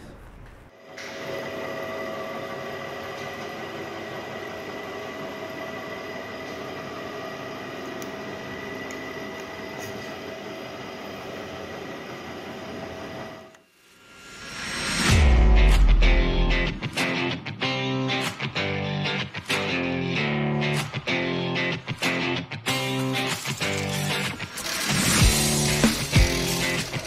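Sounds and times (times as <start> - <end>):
boring machine running with whine: 0.8 - 13.6, 23.2 - 27.0.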